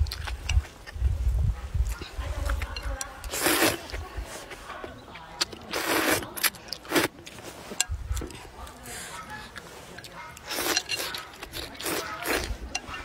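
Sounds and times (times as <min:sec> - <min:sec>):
chewing clicks: 0:00.0 - 0:01.0, 0:09.1 - 0:13.0
noodles slurped: 0:01.9 - 0:13.0.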